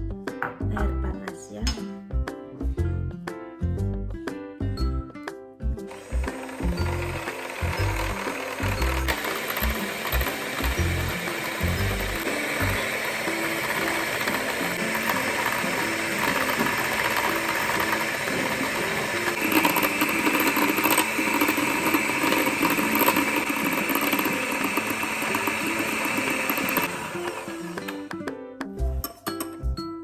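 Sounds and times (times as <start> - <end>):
electric hand mixer whirring: 5.9 - 28.2.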